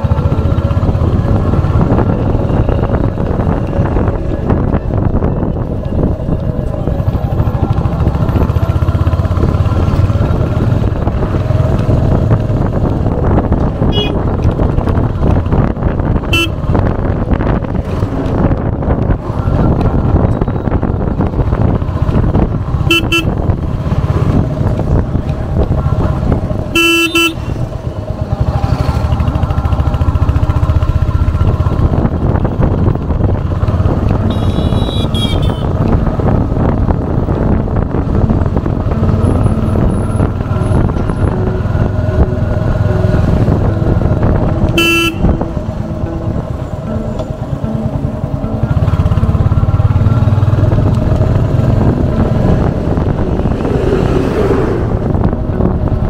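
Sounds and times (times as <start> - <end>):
motorcycle engine rumble: 0.0 - 56.0
vehicle horn honking: 13.9 - 14.2, 16.2 - 16.7, 22.8 - 23.5, 26.7 - 27.6, 34.2 - 35.7, 44.6 - 45.4.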